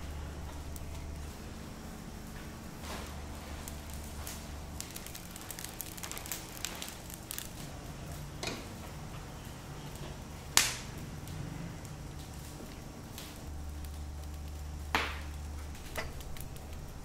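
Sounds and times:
charcoal fire crackling and popping: 0.0s - 17.0s
loud sharp crack: 10.6s - 10.9s.

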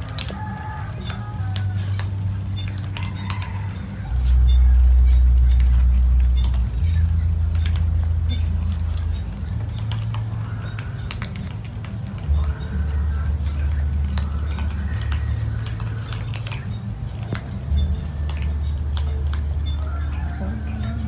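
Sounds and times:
steady low rumble: 1.3s - 21.0s
cats crunching dry kibble: 5.2s - 21.0s.

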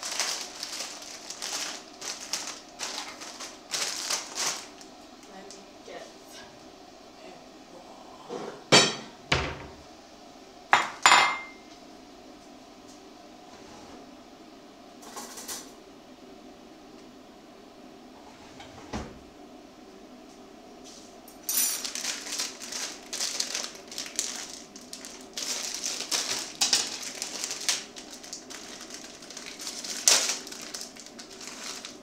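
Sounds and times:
plastic packet crinkling: 0.0s - 5.3s, 21.7s - 32.0s.

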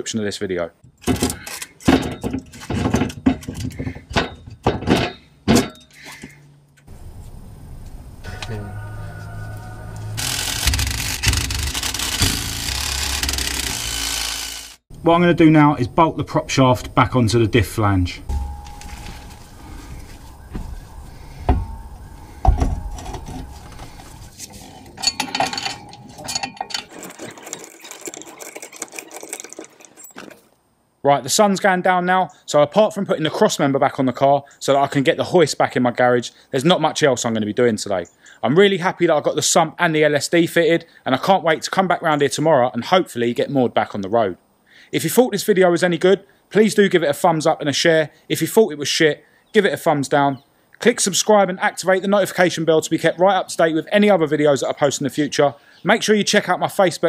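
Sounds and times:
metal clunks and knocks: 0.8s - 6.2s, 18.3s - 19.4s, 21.4s - 27.4s
spanner clicking on bolts: 10.2s - 14.8s.

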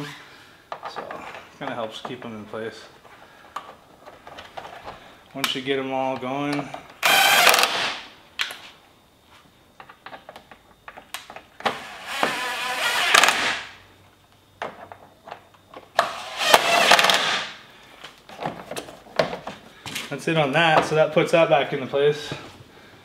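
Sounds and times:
cordless drill driving screws: 7.0s - 7.9s, 11.7s - 13.6s, 16.0s - 17.4s.

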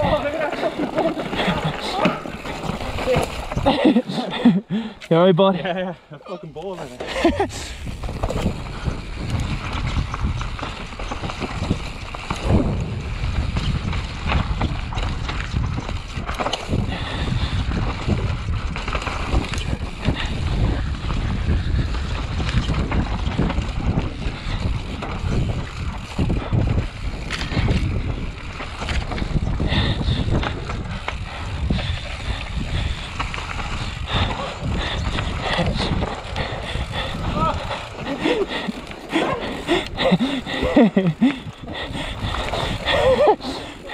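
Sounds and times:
bicycle knocks and rattles: 6.9s - 37.5s
wind on microphone: 7.2s - 43.9s
low rumble: 12.3s - 15.1s.

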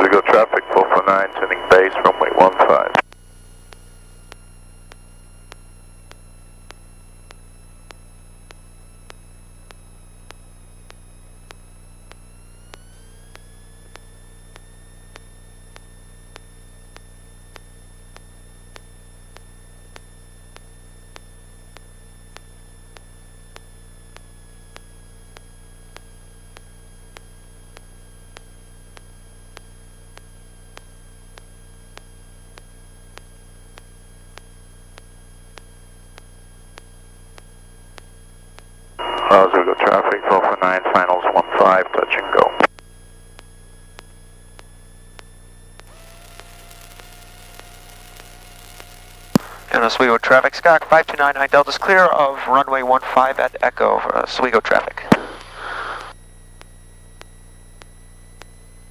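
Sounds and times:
aircraft cockpit hum: 0.0s - 3.1s, 39.0s - 42.7s, 44.0s - 58.9s
faint regular ticks: 3.1s - 38.7s, 42.8s - 53.6s
thin rising whine: 45.8s - 56.1s.

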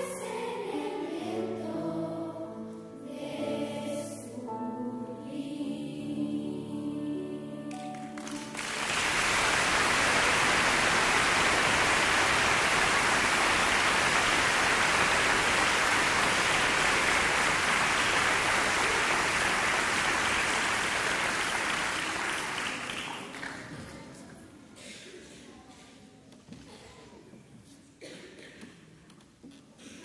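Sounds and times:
choir singing: 0.0s - 22.3s
audience applauding: 7.8s - 23.9s.

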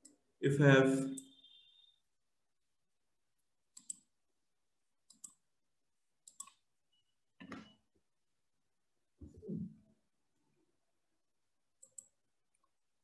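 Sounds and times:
faint computer mouse clicks: 6.2s - 6.6s, 11.8s - 12.7s.

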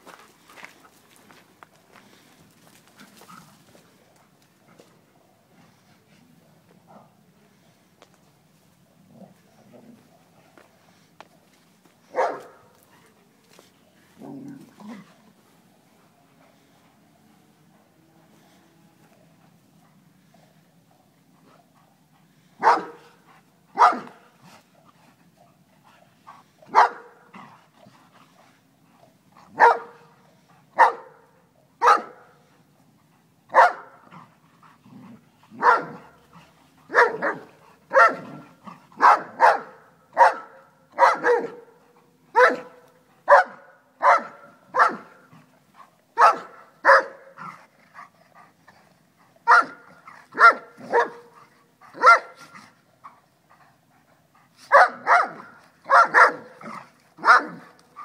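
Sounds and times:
dog barking: 12.1s - 12.6s, 22.6s - 23.1s, 23.8s - 24.2s, 26.7s - 27.2s, 29.6s - 30.0s, 30.8s - 31.2s, 31.8s - 32.3s, 33.5s - 34.0s, 35.6s - 36.0s, 36.9s - 38.4s, 39.0s - 41.7s, 42.3s - 45.2s, 46.2s - 47.3s, 49.5s - 51.3s, 52.0s - 52.5s, 54.7s - 56.6s, 57.2s - 57.7s.

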